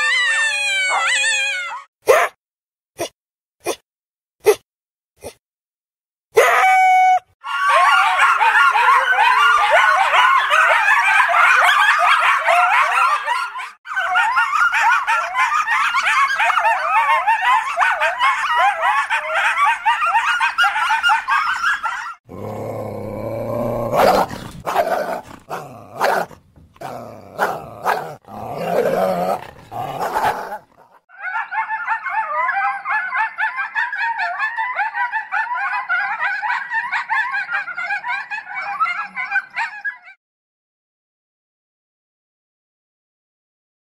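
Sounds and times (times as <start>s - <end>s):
coyotes yipping and howling: 0.0s - 2.3s, 6.4s - 40.2s
coyote barks: 6.4s - 40.0s.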